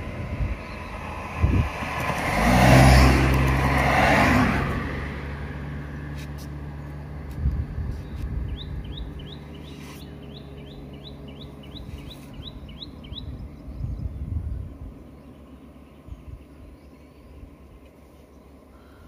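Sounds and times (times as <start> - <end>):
bird chirping: 7.9 - 19.0
low rumble: 10.2 - 15.4.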